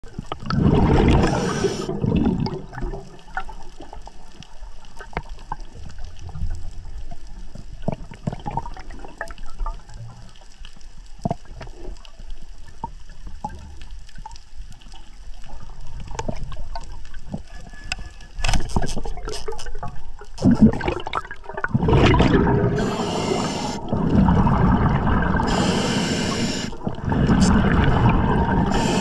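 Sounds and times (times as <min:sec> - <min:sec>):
underwater background noise: 0:00.0 - 0:29.0
diver's exhaled bubbles: 0:00.4 - 0:03.1, 0:20.4 - 0:29.0.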